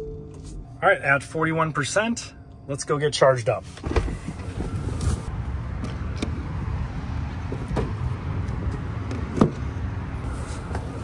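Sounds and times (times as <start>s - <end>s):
car door opening: 3.7s - 6.4s.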